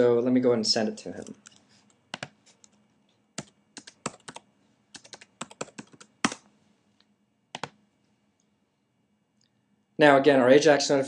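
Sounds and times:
computer keyboard typing: 0:01.2 - 0:02.8, 0:03.4 - 0:06.4, 0:07.5 - 0:07.8.

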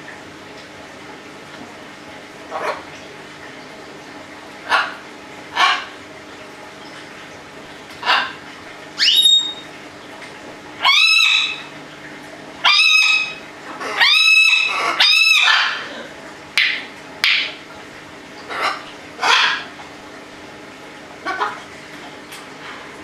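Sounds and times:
parrots squawking: 0:04.7 - 0:06.0, 0:08.0 - 0:08.4, 0:09.0 - 0:09.7, 0:10.8 - 0:11.7, 0:12.6 - 0:16.1, 0:18.5 - 0:19.7, 0:21.2 - 0:21.6.

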